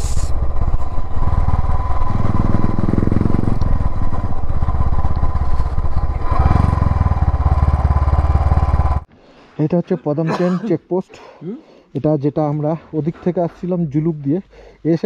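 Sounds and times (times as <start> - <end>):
motorcycle engine revving: 0.0 - 9.1.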